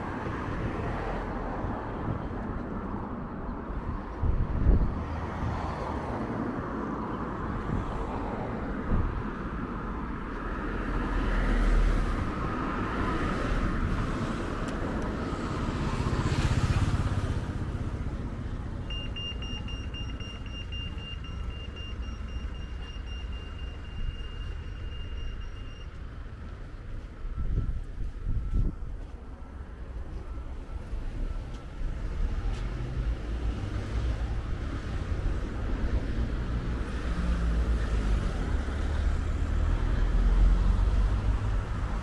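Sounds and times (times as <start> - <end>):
cars passing: 0.0 - 42.0
crossing signal high tone: 18.8 - 32.3.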